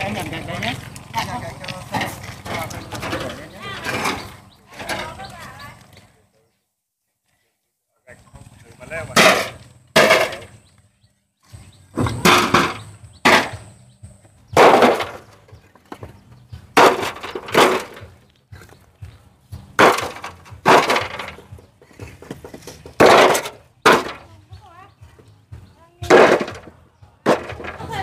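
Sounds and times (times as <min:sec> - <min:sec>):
bricks clattering together: 0:09.1 - 0:10.6, 0:12.0 - 0:13.8, 0:14.5 - 0:18.2, 0:19.7 - 0:24.3, 0:26.1 - 0:28.0.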